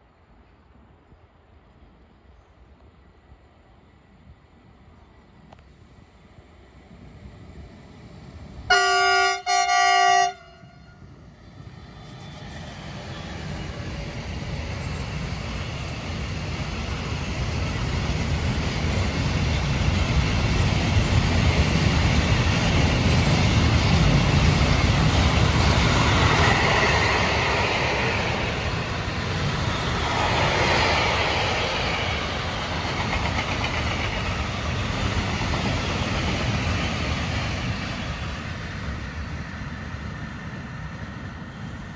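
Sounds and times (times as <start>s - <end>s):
locomotive horn blasts: 8.7s - 11.0s.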